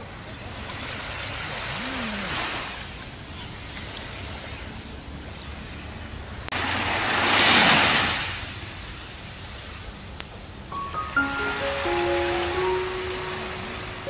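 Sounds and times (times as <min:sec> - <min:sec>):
small waves washing on sand: 0:00.1 - 0:09.9.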